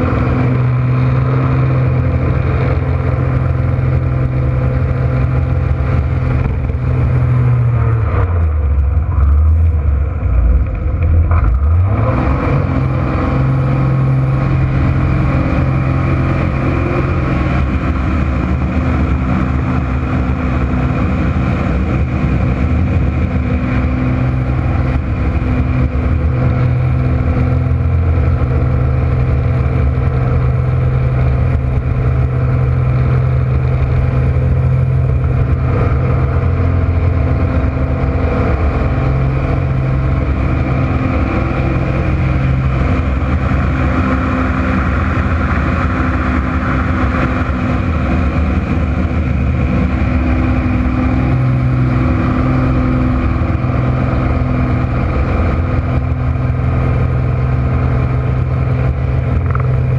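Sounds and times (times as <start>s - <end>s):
propeller plane engine drone: 0.0s - 59.9s.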